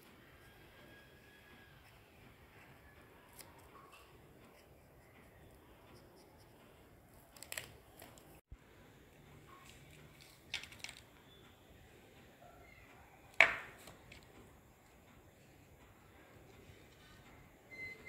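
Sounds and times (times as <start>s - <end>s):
paper rustles and pen clicks: 7.1s - 8.4s, 9.6s - 11.2s, 13.3s - 14.5s.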